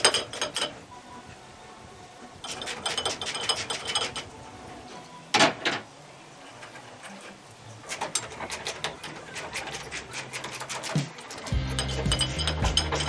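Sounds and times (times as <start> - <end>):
ratchet wrench clicking: 10.8 - 13.0.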